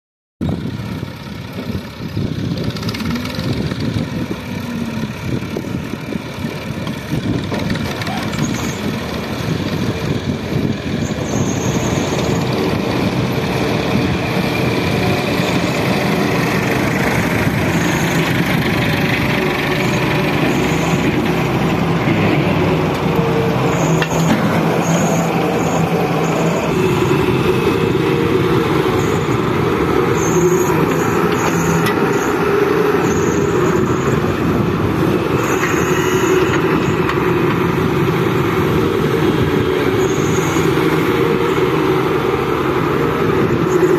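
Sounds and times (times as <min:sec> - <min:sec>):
excavator diesel engine: 0:00.4 - 0:43.9
tractor engine running: 0:00.4 - 0:43.9.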